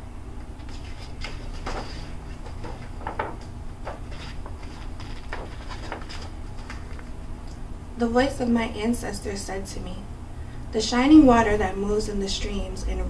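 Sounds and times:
low background hum: 0.0s - 13.0s
book pages turning: 0.6s - 7.2s
soft paper rustles: 0.6s - 7.2s.

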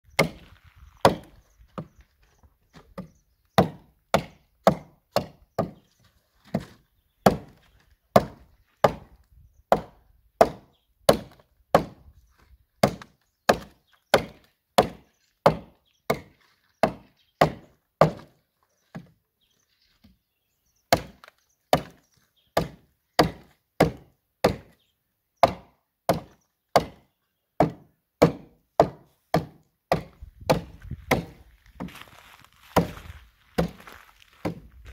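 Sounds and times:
axe chopping into wood: 0.1s - 1.9s, 3.0s - 5.8s, 6.4s - 12.1s, 12.8s - 19.1s, 20.9s - 22.0s, 22.6s - 24.8s, 25.4s - 31.4s, 32.8s - 33.8s, 34.4s - 34.7s.

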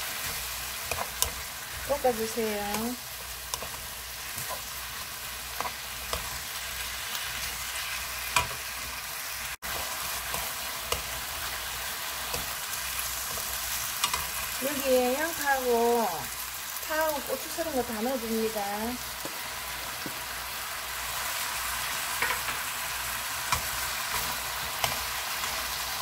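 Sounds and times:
spatulas scraping a pan: 0.0s - 9.0s, 9.6s - 14.6s, 23.4s - 26.0s
food sizzling in sauce: 0.0s - 26.0s.

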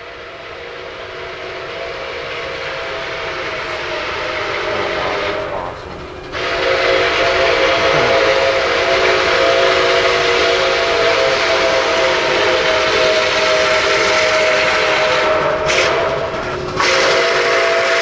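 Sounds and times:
locomotive air horn: 0.0s - 5.5s, 6.3s - 18.0s
loud rushing hiss: 2.9s - 10.0s.

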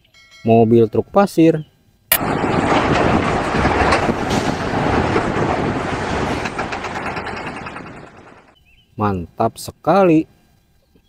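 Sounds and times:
heavy truck engine rumble with rattling: 2.2s - 8.6s.

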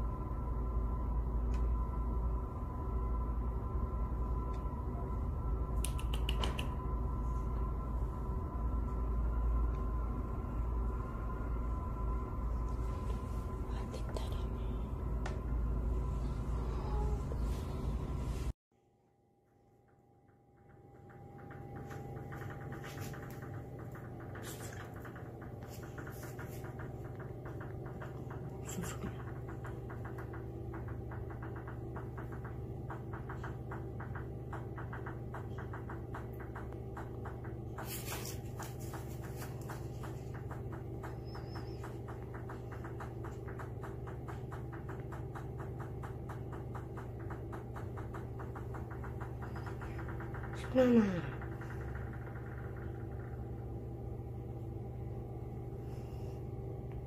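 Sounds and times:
low machine hum: 0.0s - 57.0s
sharp clicks: 5.8s - 6.8s.

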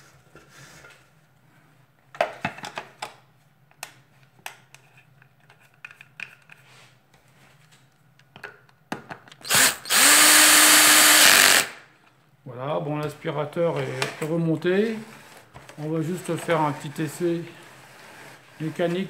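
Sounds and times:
plastic parts clicking and knocking: 2.1s - 6.6s.

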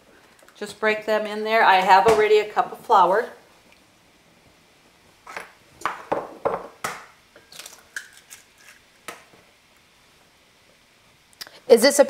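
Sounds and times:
eggs cracking against bowl: 6.8s - 9.3s.

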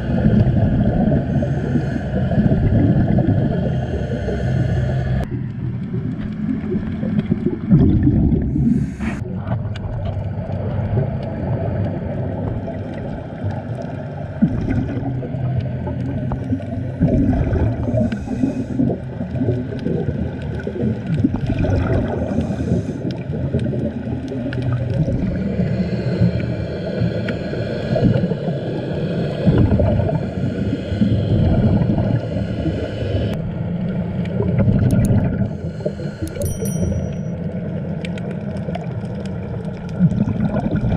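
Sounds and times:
bubbles gurgling underwater: 0.0s - 4.5s, 5.1s - 36.6s, 37.4s - 40.9s
low steady hum: 0.0s - 40.9s
scuba regulator breathing: 1.0s - 5.3s, 8.4s - 9.2s, 17.8s - 19.1s, 22.2s - 23.2s, 25.4s - 33.4s, 35.4s - 37.3s.

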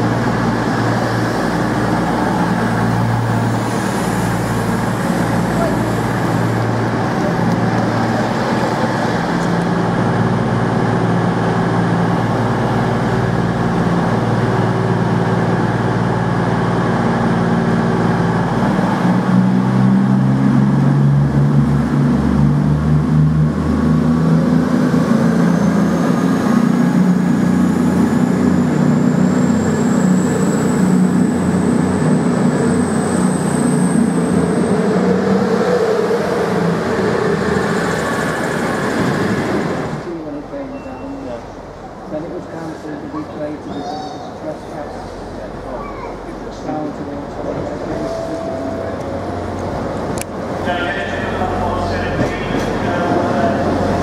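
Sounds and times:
train diesel engines running: 0.0s - 54.0s.

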